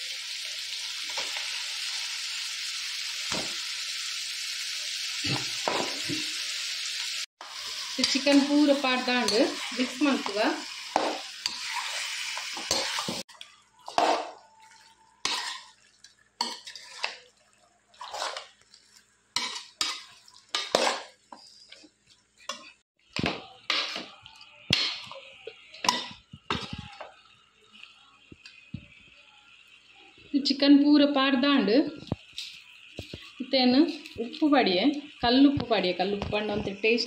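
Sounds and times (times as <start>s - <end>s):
food sizzling in a pan: 0.0s - 37.0s
spoon scraping and clinking pan: 15.2s - 15.8s, 16.4s - 17.3s, 18.0s - 18.6s, 19.4s - 22.8s.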